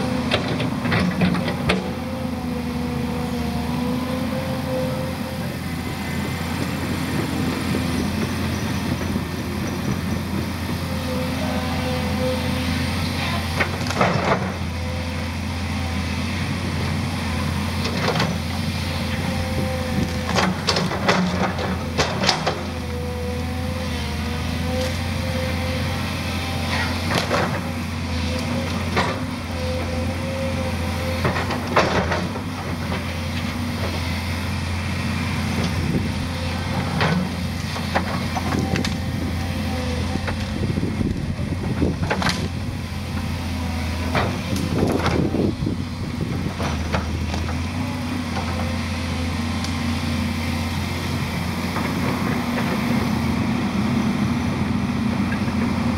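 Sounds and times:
excavator diesel engine running: 0.0s - 55.9s
branches cracking and snapping: 37.6s - 39.0s.

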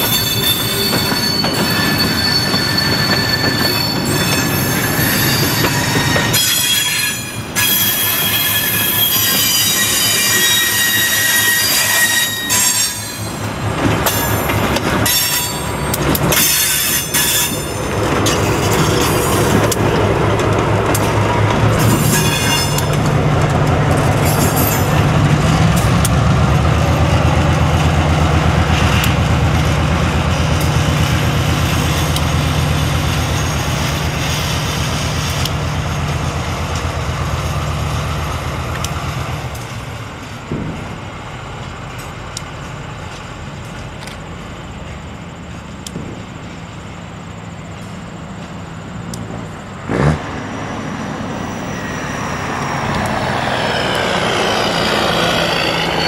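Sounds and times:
diesel locomotive engine running: 0.0s - 56.0s
train wheels clicking on rails: 0.0s - 56.0s.

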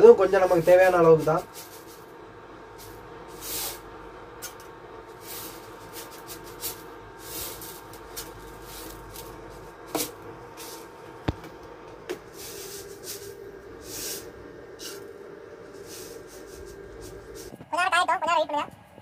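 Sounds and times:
hot oil sizzling: 0.0s - 11.1s.

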